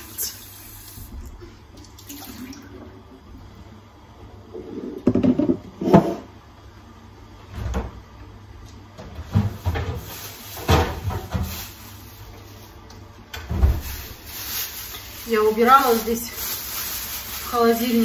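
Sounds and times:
kitchen doors knocking and thumping: 10.6 - 11.5.

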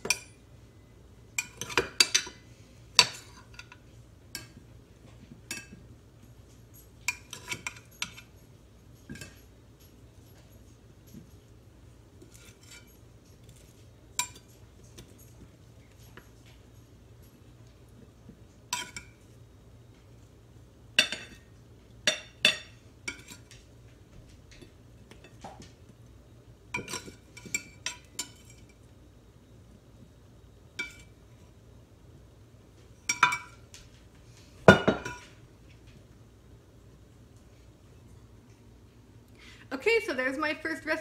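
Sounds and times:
metal utensil clinking on glass dish: 6.8 - 8.3.

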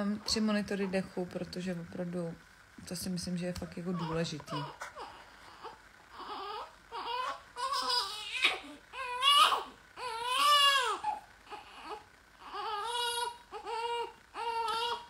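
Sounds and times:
baby crying: 3.9 - 15.0.

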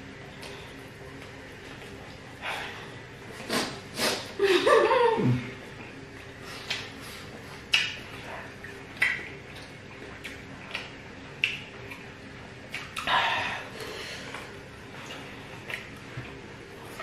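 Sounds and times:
mouth smacks: 6.6 - 7.0, 7.6 - 12.1, 12.7 - 13.1.

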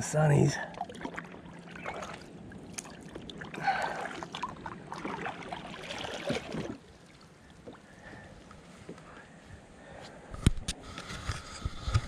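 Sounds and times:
water splashing and dripping: 0.6 - 8.2.

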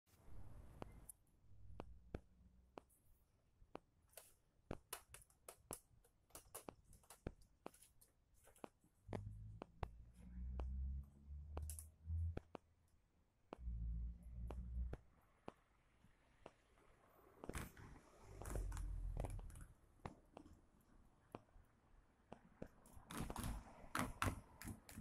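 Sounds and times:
sharp clicks and taps: 0.7 - 3.0, 3.7 - 7.9, 8.5 - 10.8, 11.5 - 12.7, 14.4 - 15.6.

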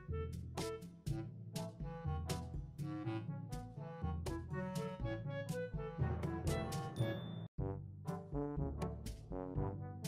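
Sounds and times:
brass melody: 0.0 - 7.0, 7.6 - 10.0.

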